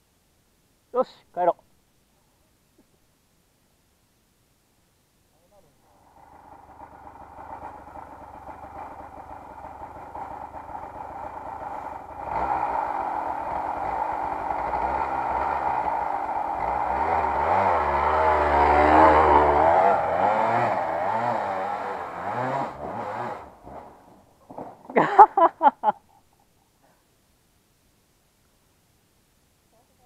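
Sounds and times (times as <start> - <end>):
dirt bike engine revving: 5.9 - 24.2.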